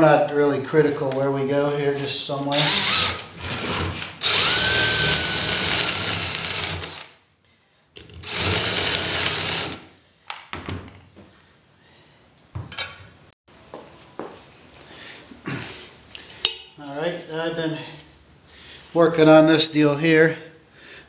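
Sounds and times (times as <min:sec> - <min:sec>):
cordless drill boring metal: 0:02.5 - 0:07.2, 0:08.2 - 0:09.8.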